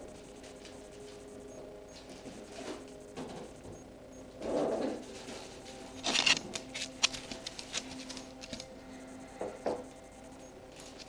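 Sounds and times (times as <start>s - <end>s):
scratching: 4.4s - 8.7s.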